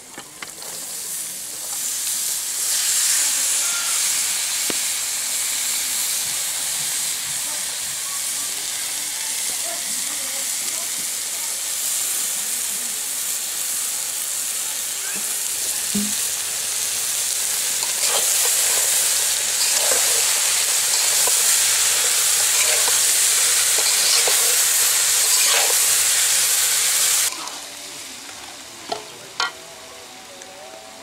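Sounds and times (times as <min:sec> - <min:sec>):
potato sticks sizzling in oil: 0:00.0 - 0:29.7
metal spatula scraping wok: 0:17.5 - 0:27.4.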